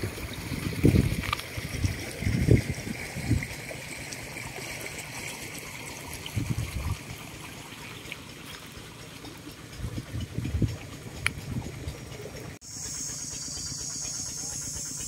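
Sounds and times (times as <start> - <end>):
water flowing and trickling: 0.0 - 15.0
low rumbles: 9.2 - 12.6.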